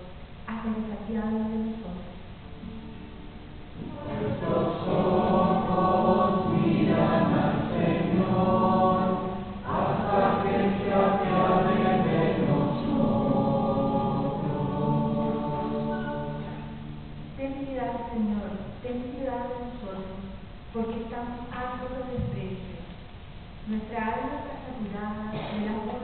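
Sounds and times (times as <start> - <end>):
group of voices singing: 3.8 - 16.8.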